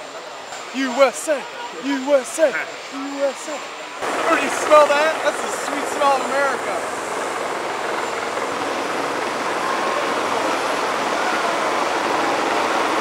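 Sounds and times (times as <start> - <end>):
high turbine whine: 0.9 - 13.0
helicopter engines and rotor: 3.1 - 13.0.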